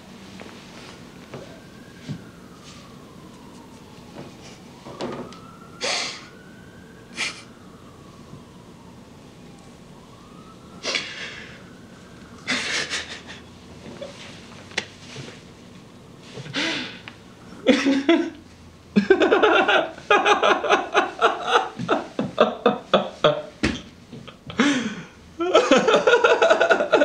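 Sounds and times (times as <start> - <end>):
man laughing: 7.1 - 7.5, 12.4 - 14.2, 16.5 - 18.4, 19.0 - 23.6, 24.2 - 27.0
man breathing heavily: 10.8 - 11.7, 12.4 - 13.4, 16.4 - 17.6, 24.5 - 25.3.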